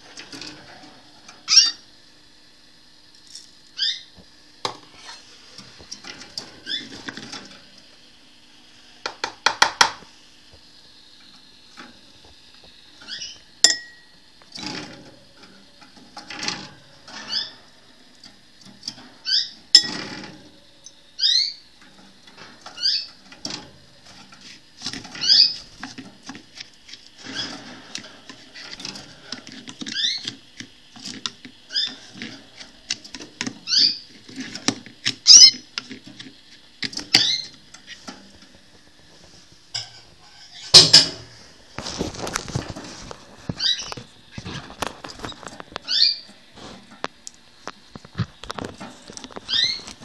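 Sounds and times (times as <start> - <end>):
canaries chirping: 1.5 - 1.8, 3.8 - 4.1, 13.1 - 13.4, 19.2 - 19.6, 21.2 - 21.7, 22.8 - 23.2, 25.2 - 25.7, 29.8 - 30.3, 31.7 - 32.1, 33.6 - 34.1, 35.2 - 35.6, 37.1 - 37.6, 43.6 - 44.0, 45.3 - 46.3, 49.4 - 49.9
feeding dish clicks and rustles: 46.6 - 50.0.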